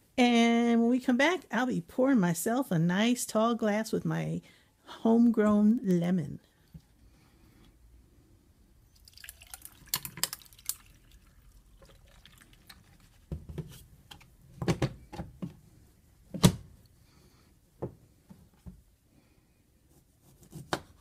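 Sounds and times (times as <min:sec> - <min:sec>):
iced tea pouring over ice: 0:09.0 - 0:13.1
ice clicking and crackling: 0:09.1 - 0:12.9.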